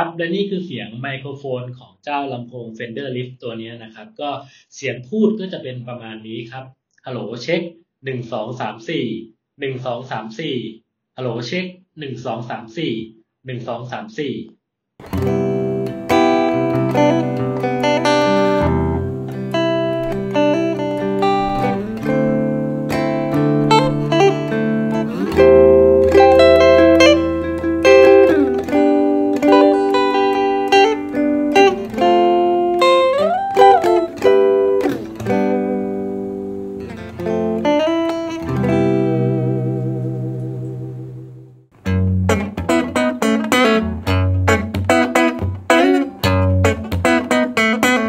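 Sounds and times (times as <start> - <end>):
electric guitar chords and notes: 15.0 - 48.0.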